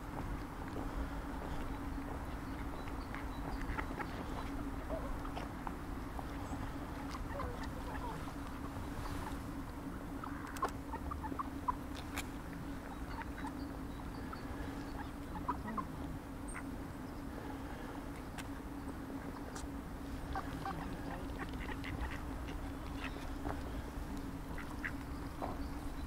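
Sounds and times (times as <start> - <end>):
steady low hum: 0.0 - 26.0
footsteps on pavement: 0.1 - 4.6
ducks clicking and calling: 0.8 - 16.8, 19.2 - 26.0.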